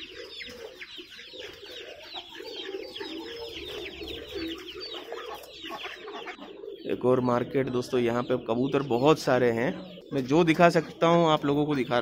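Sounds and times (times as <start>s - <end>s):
chicks peeping: 0.0s - 12.0s
pigeons and fowl calling: 0.0s - 12.0s.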